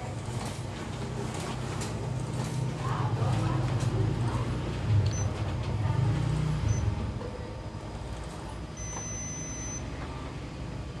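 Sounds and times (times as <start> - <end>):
copier mechanical rumble: 0.0 - 11.0
short high beeps: 8.8 - 9.8.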